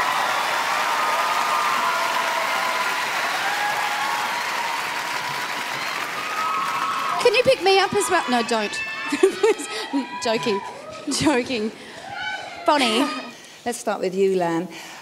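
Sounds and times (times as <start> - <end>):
audience applauding and cheering: 0.0 - 11.2.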